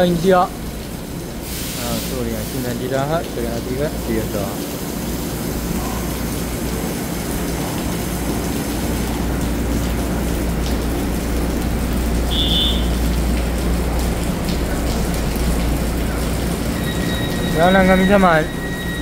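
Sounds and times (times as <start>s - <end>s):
rain falling: 0.0s - 19.0s
short high beep: 12.3s - 12.9s
electric train humming: 16.2s - 19.0s.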